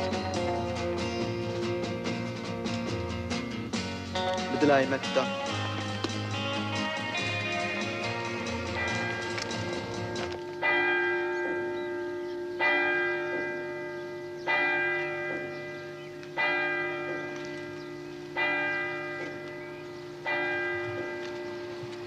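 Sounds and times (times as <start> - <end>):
church bell tolling: 7.4 - 22.0.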